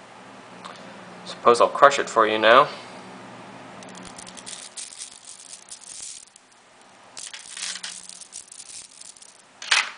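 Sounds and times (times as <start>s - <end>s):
magnet spheres clicking and rattling: 3.8s - 9.8s.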